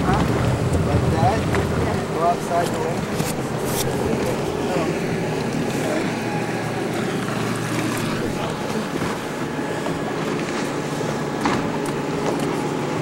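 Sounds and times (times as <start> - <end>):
wind buffeting microphone: 0.0 - 12.2
boat engine humming: 0.0 - 13.0
water noise: 0.0 - 13.0.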